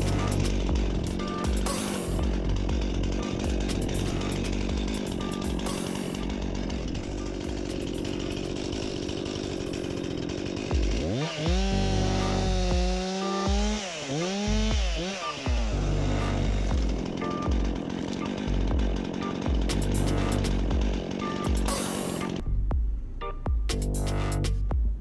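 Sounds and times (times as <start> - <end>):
music with pulsing bass beat: 0.0 - 8.5, 10.7 - 11.7, 18.6 - 25.0
chainsaw running: 0.0 - 22.5, 23.7 - 24.5.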